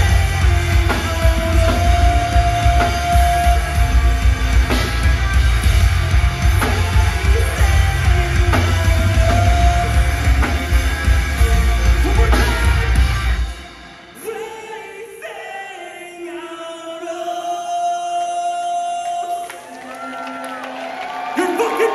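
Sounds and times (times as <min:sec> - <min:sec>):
bass guitar: 0:00.0 - 0:13.7
pounding drums: 0:00.0 - 0:14.4
distorted guitars: 0:00.0 - 0:14.8
shouted vocals: 0:19.3 - 0:21.9.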